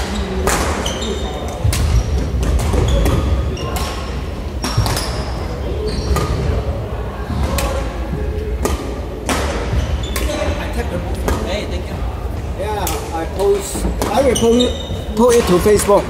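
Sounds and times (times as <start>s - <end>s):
sneakers squeaking on wooden floor: 0.0s - 6.6s, 9.5s - 11.6s, 13.6s - 16.0s
rackets hitting shuttlecocks: 0.4s - 0.8s, 8.6s - 10.4s, 12.8s - 14.3s.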